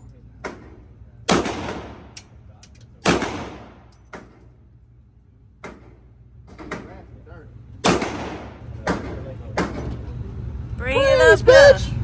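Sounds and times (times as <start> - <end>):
handgun shot echoing: 7.8 - 8.6.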